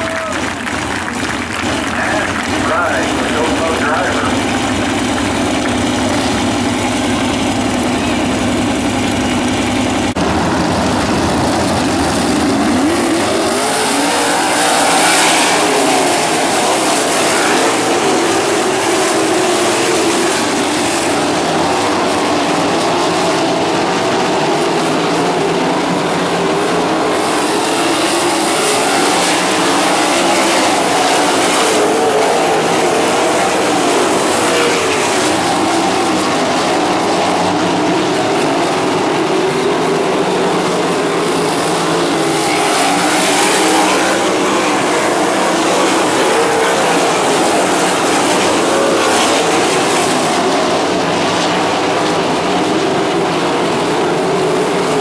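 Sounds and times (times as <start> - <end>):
racing car engines: 0.0 - 55.0.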